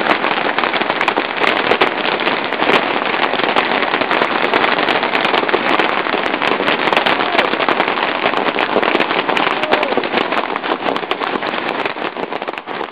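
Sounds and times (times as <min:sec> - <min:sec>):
fireworks crackling and popping: 0:00.0 - 0:12.9.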